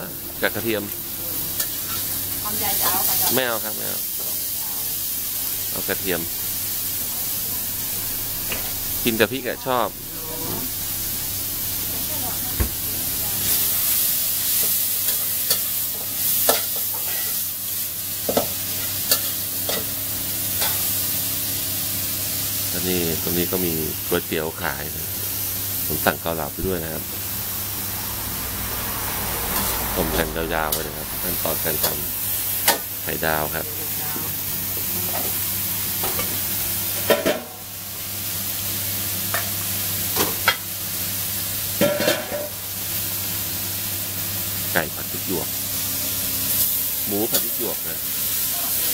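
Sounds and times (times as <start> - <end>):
meat and peppers sizzling in wok: 0.0 - 48.9
metal ladle scraping and clanking wok: 13.4 - 17.4.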